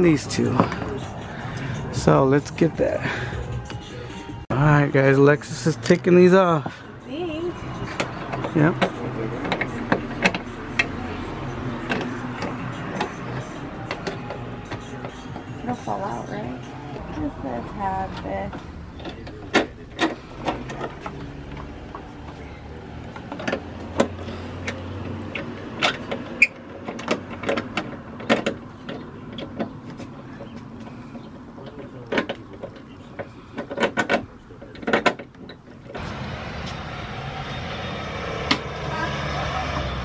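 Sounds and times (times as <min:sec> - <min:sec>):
steady background noise: 0:00.0 - 0:40.0.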